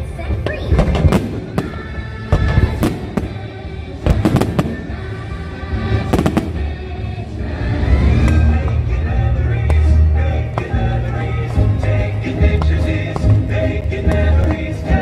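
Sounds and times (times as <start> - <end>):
loud music soundtrack: 0.0 - 15.0
fireworks bangs: 0.3 - 7.0.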